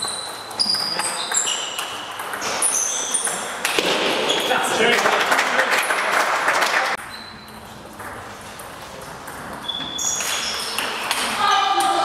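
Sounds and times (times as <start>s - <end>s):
shoes squeaking on floor: 0.0s - 4.9s, 7.0s - 11.8s
spectators clapping: 4.8s - 7.0s.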